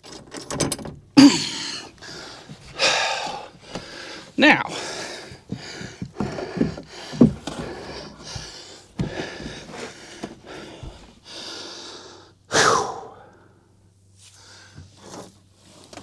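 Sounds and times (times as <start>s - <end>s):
man grunting: 1.2s - 1.8s, 4.4s - 4.8s, 12.5s - 13.2s
man breathing hard: 1.2s - 14.9s
sharp exhale: 11.6s - 13.4s.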